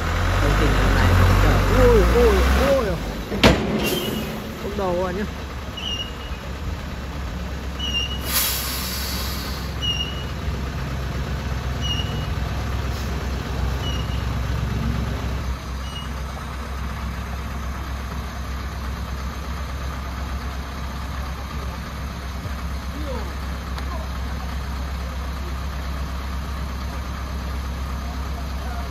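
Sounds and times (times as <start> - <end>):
diesel truck engine running: 0.0 - 28.9
air hiss: 8.2 - 9.8.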